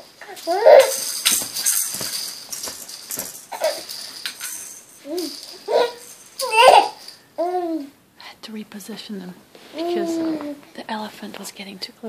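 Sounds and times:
baby cooing and squealing: 0.2 - 1.0, 3.5 - 3.9, 5.0 - 8.0
plastic toys rattling and clacking: 0.2 - 7.2.

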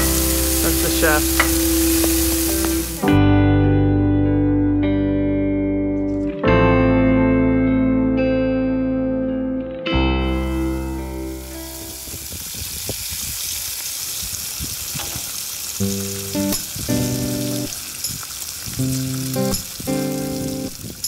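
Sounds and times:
bacon sizzling on a griddle: 0.0 - 3.1, 10.5 - 21.0
strummed guitar chords: 0.0 - 12.0, 15.8 - 17.7, 18.8 - 20.8.

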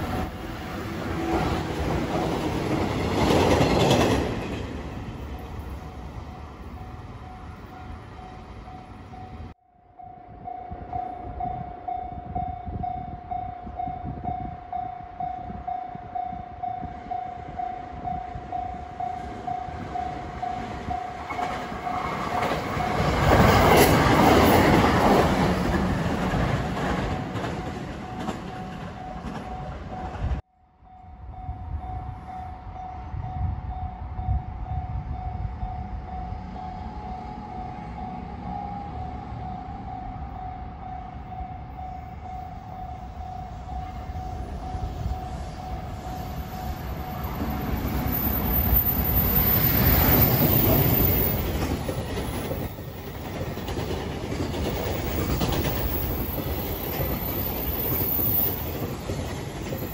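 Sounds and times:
electric train passing: 0.0 - 59.9
level-crossing alarm dinging: 30.9 - 52.2.

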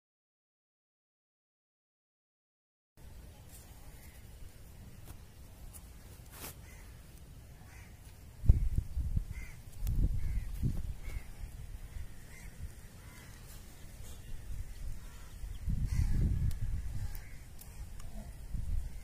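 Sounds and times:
bird calling: 6.4 - 19.0.

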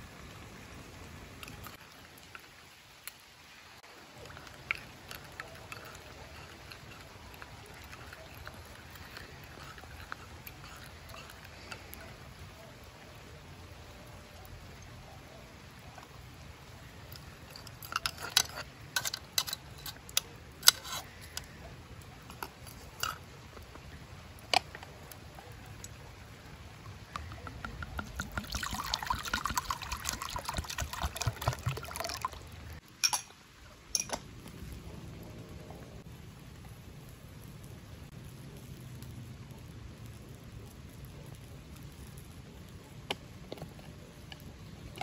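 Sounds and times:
liquid pouring into pot: 27.1 - 33.3
spoon clinking against dishes: 33.0 - 33.3.

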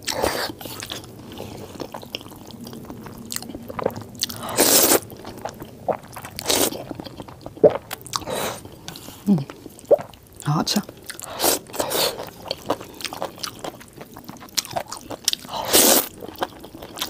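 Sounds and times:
noodle slurping: 0.0 - 10.1, 15.6 - 16.1.

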